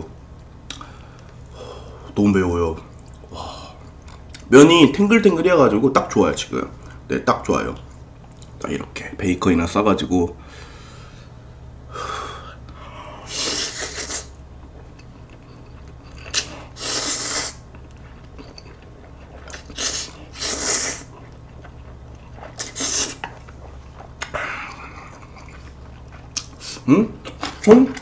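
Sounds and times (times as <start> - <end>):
noodles slurped: 13.3 - 14.4, 16.1 - 17.6, 18.7 - 27.6.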